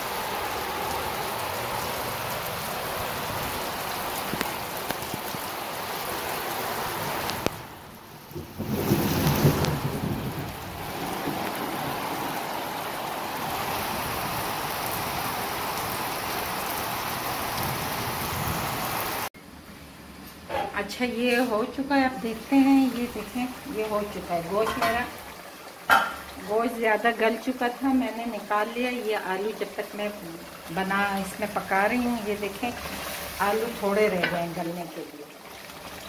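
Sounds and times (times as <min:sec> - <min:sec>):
heavy rain on concrete roof: 0:00.0 - 0:19.3, 0:21.4 - 0:36.0.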